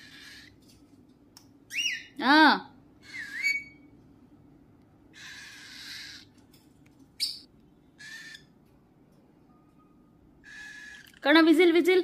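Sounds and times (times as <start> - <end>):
parrot harsh raspy calls: 0.0 - 0.6, 3.0 - 3.8, 5.1 - 6.4, 7.2 - 8.5, 10.4 - 11.3
parrot whistling: 3.0 - 3.9.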